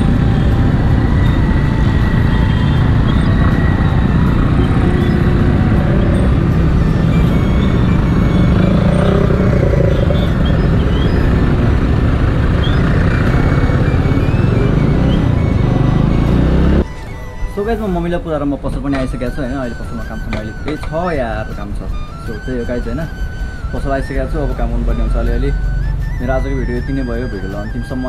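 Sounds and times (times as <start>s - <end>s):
motorcycle engine running: 0.0s - 16.8s
road and traffic noise: 0.0s - 28.0s.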